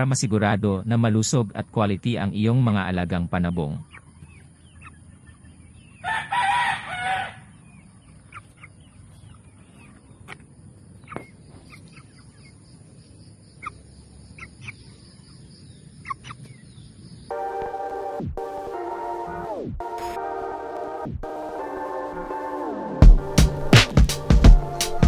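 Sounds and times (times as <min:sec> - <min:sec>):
rooster crowing: 0:06.0 - 0:07.6.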